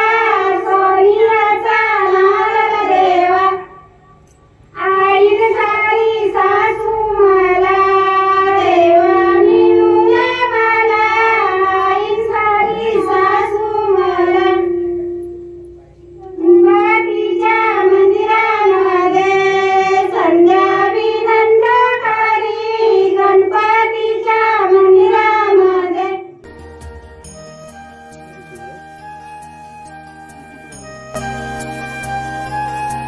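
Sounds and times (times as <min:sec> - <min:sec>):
women singing folk song: 0:04.8 - 0:15.0, 0:16.4 - 0:26.3
instrumental music: 0:05.4 - 0:21.5, 0:26.2 - 0:33.0.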